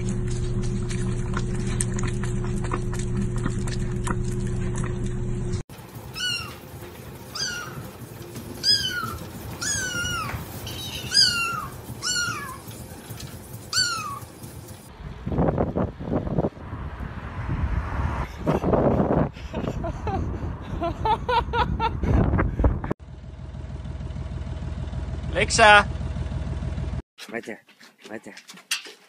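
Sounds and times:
steady low hum: 0:00.0 - 0:06.1
kitten meowing: 0:06.2 - 0:06.6, 0:07.3 - 0:07.8, 0:08.6 - 0:12.6, 0:13.7 - 0:14.2.

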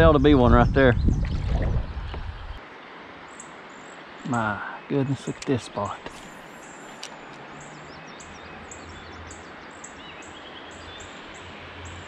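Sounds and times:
river hiss: 0:02.6 - 0:12.0
bird chirping: 0:03.3 - 0:12.0.

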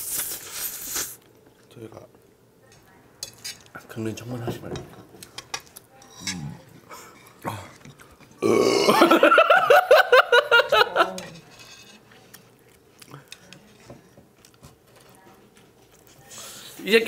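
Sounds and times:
man burping: 0:07.4 - 0:07.8, 0:08.4 - 0:09.2
laughter: 0:08.9 - 0:11.2.

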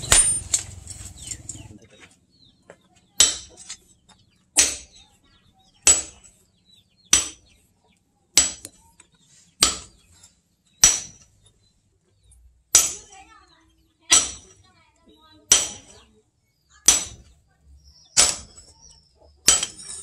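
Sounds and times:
hammer striking metal on anvil: 0:00.0 - 0:01.4, 0:03.2 - 0:03.8, 0:04.6 - 0:05.0, 0:05.8 - 0:06.2, 0:07.1 - 0:07.5, 0:08.4 - 0:08.8, 0:09.6 - 0:10.0, 0:10.8 - 0:11.3, 0:12.7 - 0:13.1, 0:14.1 - 0:14.6, 0:15.5 - 0:16.0, 0:16.8 - 0:17.3, 0:18.2 - 0:18.7, 0:19.4 - 0:20.0.

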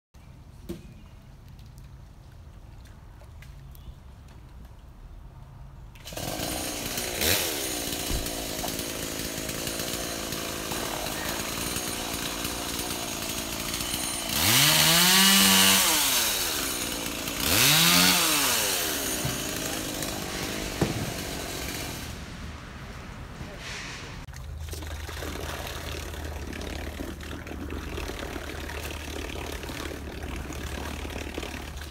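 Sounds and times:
chainsaw revving: 0:06.0 - 0:24.2, 0:25.3 - 0:31.9.

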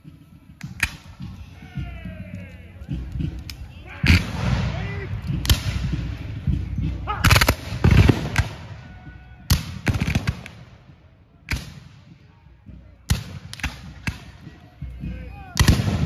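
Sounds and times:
musket shots: 0:04.0 - 0:06.3, 0:07.1 - 0:08.8, 0:09.5 - 0:10.7, 0:13.1 - 0:14.4, 0:15.6 - 0:16.0.

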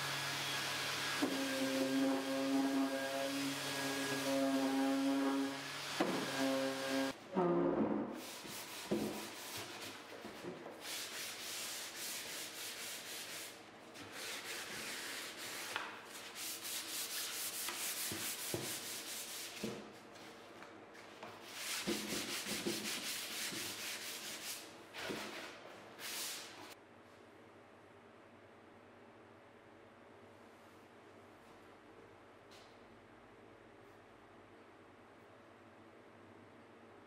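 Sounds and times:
sandpaper rasping on wood: 0:10.8 - 0:19.6, 0:21.5 - 0:25.4.

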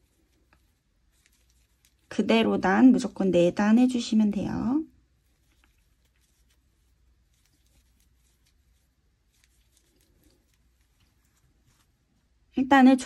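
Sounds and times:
crochet hook working yarn: 0:00.0 - 0:02.4, 0:05.0 - 0:12.0.

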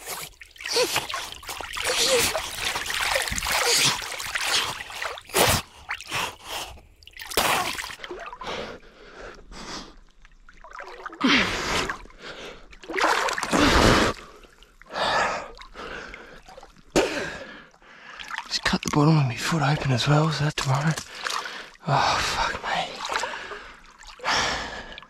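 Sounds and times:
water splashing and dripping: 0:00.0 - 0:09.4, 0:10.0 - 0:25.0.

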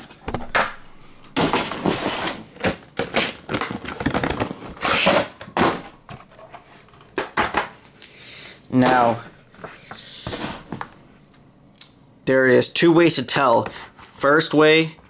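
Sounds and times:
plastic cases clicking and snapping: 0:02.4 - 0:07.7.

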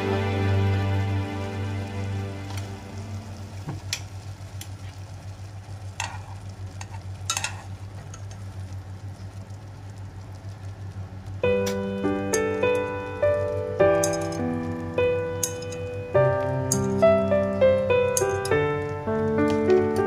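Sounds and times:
steady low hum: 0:00.0 - 0:20.0
water boiling in saucepan: 0:00.0 - 0:20.0.

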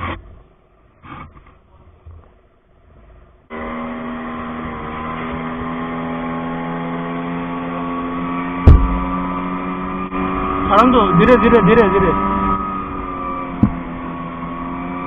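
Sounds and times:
outboard motor drone: 0:03.0 - 0:15.0.

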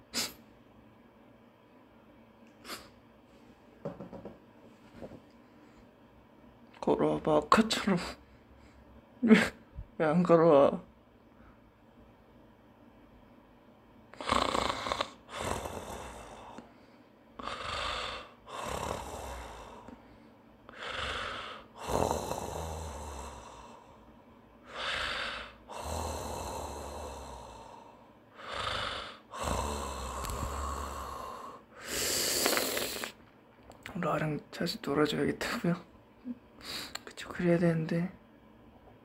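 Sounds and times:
man breathing loudly: 0:15.3 - 0:32.6.

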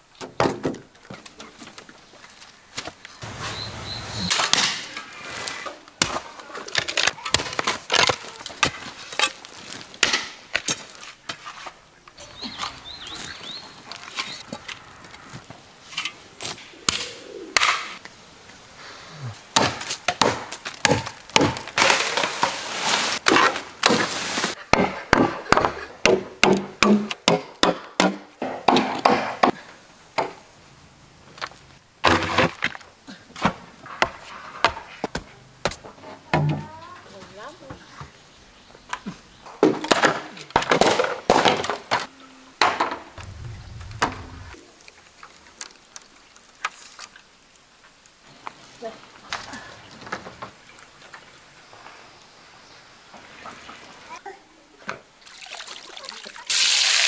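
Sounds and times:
machete chopping bamboo: 0:19.6 - 0:22.0, 0:24.7 - 0:29.6
bamboo cracking: 0:43.2 - 0:48.2.

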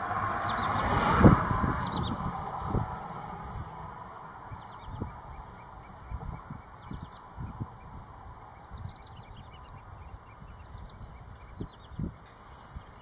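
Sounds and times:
birds calling: 0:00.0 - 0:13.0
low rumble: 0:00.0 - 0:13.0.

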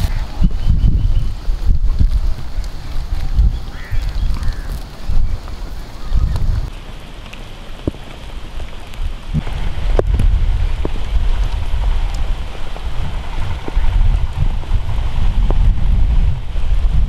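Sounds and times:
wind buffeting microphone: 0:00.0 - 0:06.7, 0:07.8 - 0:17.0
sharp clicks and crackles: 0:01.4 - 0:14.7.

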